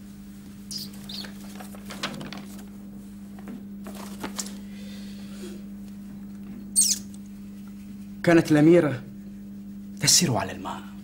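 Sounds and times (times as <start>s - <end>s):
steady low hum: 0.0s - 11.0s
paper rustling: 0.9s - 4.6s.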